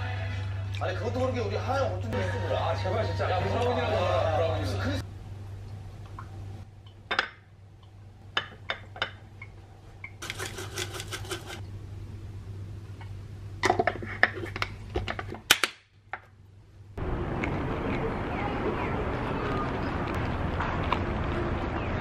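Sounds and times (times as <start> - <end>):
steady low hum: 4.5 - 15.4
seasoning shaker rattling: 10.2 - 11.6.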